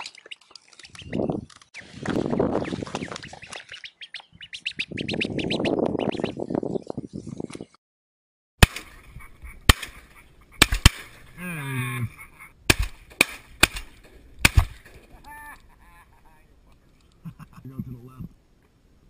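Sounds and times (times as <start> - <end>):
shotgun shots: 8.6 - 9.0, 9.6 - 11.2, 12.7 - 14.9.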